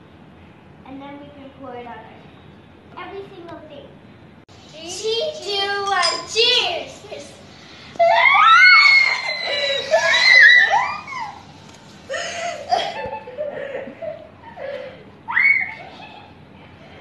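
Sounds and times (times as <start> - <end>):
girls giggling and chatting: 5.5 - 16.4
girls shrieking: 8.0 - 13.2, 14.4 - 16.3.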